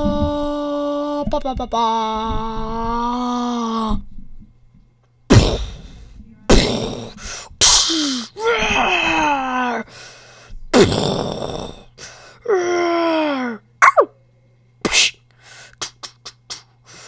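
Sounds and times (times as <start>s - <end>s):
person groaning and crying: 2.8s - 4.0s, 7.8s - 9.9s, 10.8s - 13.6s
loud breathy vocal burst: 5.3s - 8.4s.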